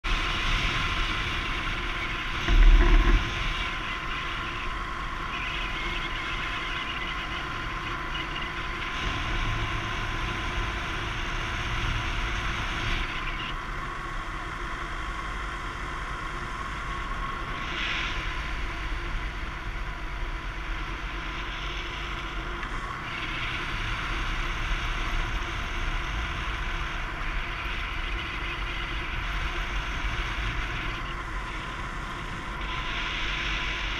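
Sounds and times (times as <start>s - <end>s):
wind on microphone: 0.1s - 6.6s.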